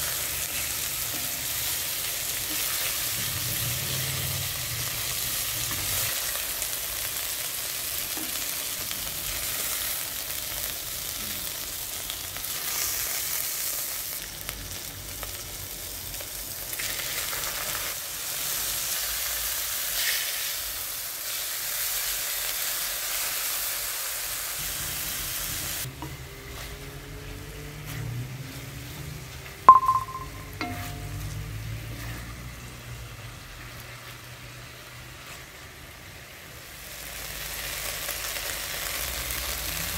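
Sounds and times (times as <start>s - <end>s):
chicken sizzling in a pot: 0.0s - 39.9s
sharp clink: 29.7s - 31.1s.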